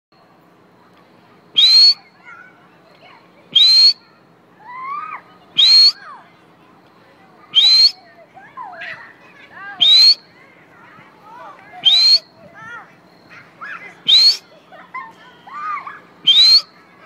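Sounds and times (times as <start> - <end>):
children calling: 0.2 - 17.0
whistle blasts: 1.5 - 2.2, 3.6 - 4.1, 5.6 - 6.1, 7.5 - 8.0, 9.8 - 10.3, 11.8 - 12.4, 14.0 - 14.5, 16.2 - 16.8.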